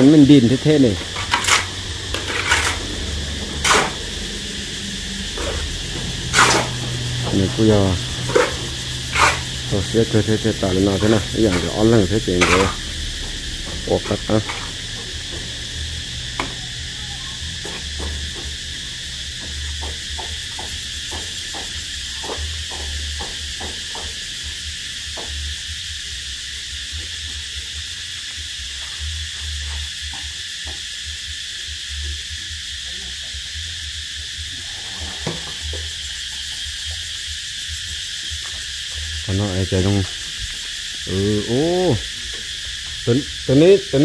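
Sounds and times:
insects droning: 0.0s - 44.0s
low rumble: 1.0s - 18.2s.

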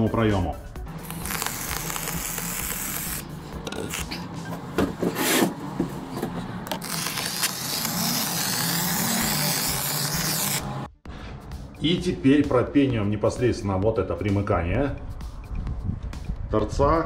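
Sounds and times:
foam hissing from nozzle: 1.1s - 3.2s.

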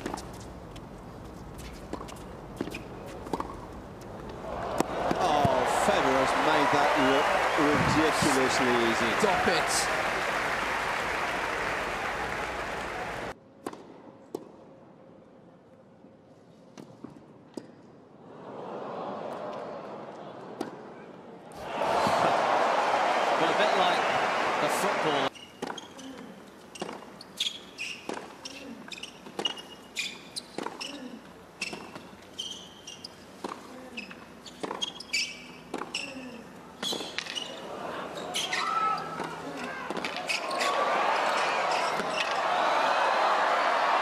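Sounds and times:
crowd applauding and cheering: 4.4s - 13.4s, 21.6s - 25.3s, 40.6s - 44.0s
sneakers squeaking on court: 25.3s - 40.8s.

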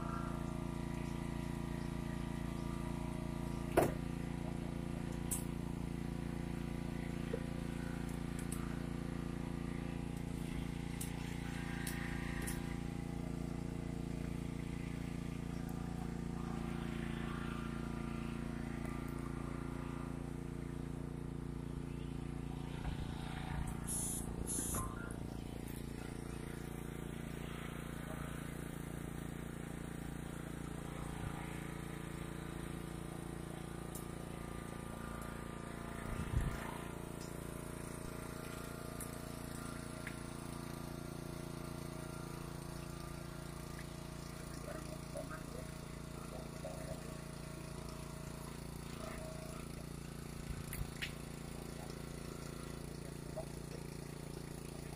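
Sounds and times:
engine running steadily: 0.0s - 54.9s
short high hisses: 23.8s - 25.0s.

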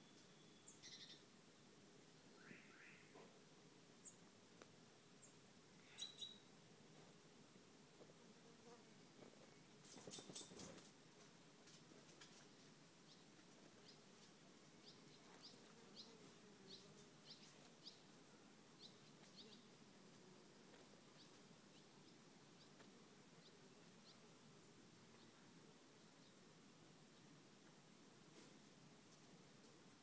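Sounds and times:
small bird chirps: 0.0s - 1.2s, 2.3s - 3.2s, 5.2s - 6.5s, 14.8s - 18.2s
rustling and crackling: 7.9s - 18.3s, 19.1s - 21.5s.

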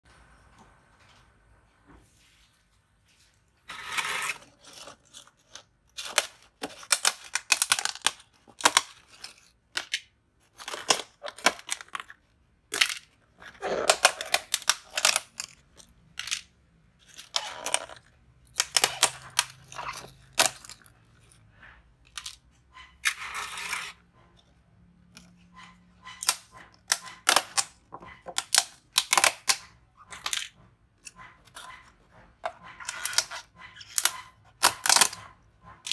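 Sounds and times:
plastic lids crackling: 3.7s - 21.3s, 26.1s - 31.8s.

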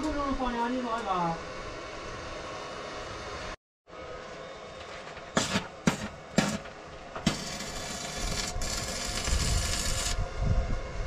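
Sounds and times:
arc welding crackle: 5.4s - 10.2s.

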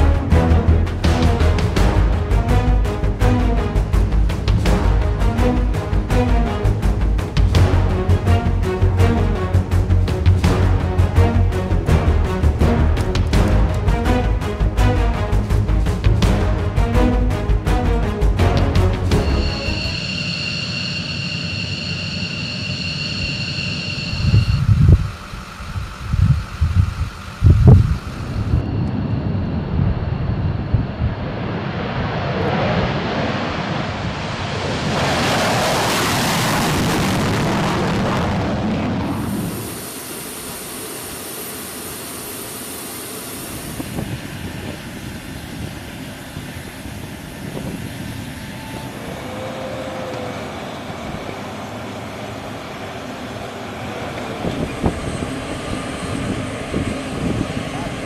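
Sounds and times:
steady low rumble: 0.0s - 40.0s
jet takeoff roar: 0.0s - 58.0s
jet engine whine: 18.6s - 58.0s.

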